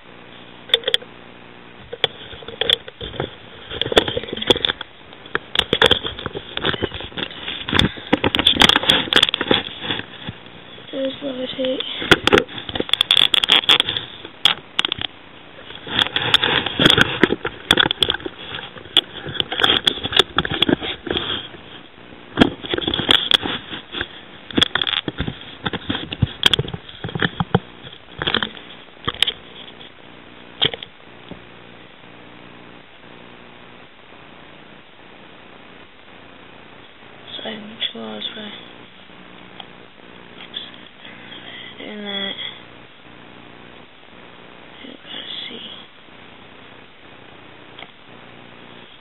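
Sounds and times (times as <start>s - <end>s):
faint steady hum: 0.0s - 49.0s
handling rustling and clicks: 1.9s - 10.5s, 11.6s - 21.8s, 22.4s - 30.0s.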